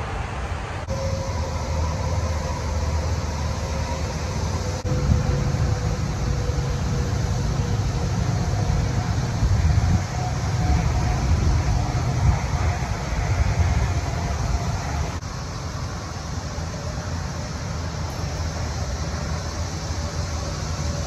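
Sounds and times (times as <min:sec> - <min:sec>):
cicadas droning: 0:00.0 - 0:21.0
low rumble of highway traffic: 0:00.0 - 0:21.0.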